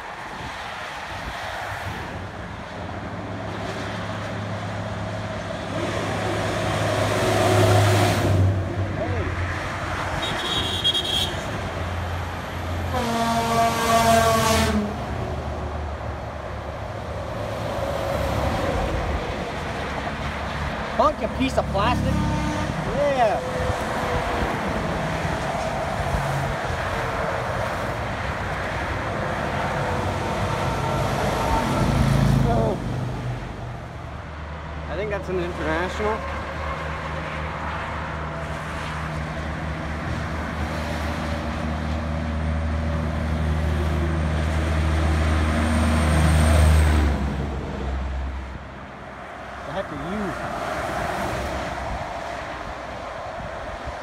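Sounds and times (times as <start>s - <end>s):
highway traffic noise: 0.0s - 54.0s
heavy truck engine drone: 2.1s - 34.5s.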